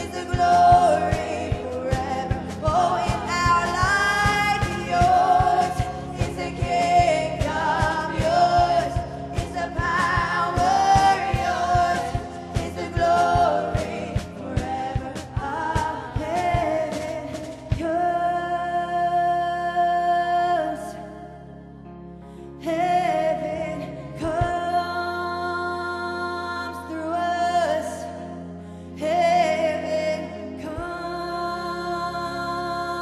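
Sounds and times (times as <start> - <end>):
drum kit and band: 0.0 - 18.2
women singing gospel: 0.0 - 21.2, 22.6 - 28.3, 29.0 - 33.0.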